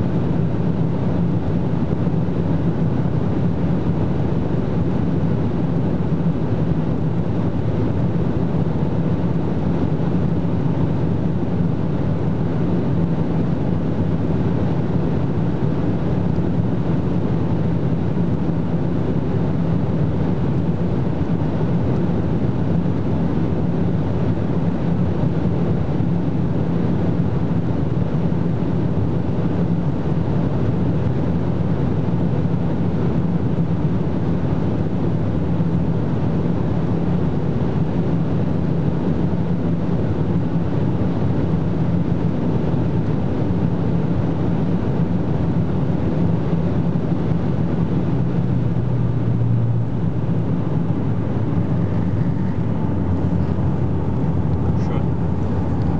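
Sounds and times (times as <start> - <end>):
wind and tyre roar: 0.0 - 55.9
car engine under load: 47.2 - 55.9.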